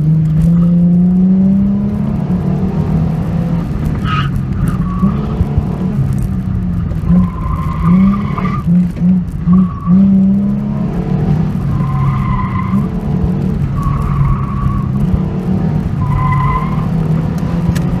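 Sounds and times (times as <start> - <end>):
car engine running hard: 0.0 - 18.0
tires squealing: 3.8 - 5.9, 7.0 - 18.0.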